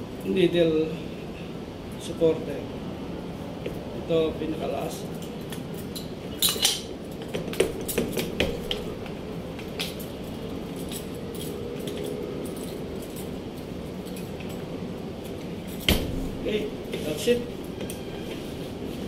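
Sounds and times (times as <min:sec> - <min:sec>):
low background noise: 0:00.0 - 0:19.0
metal parts clinking: 0:05.4 - 0:06.9.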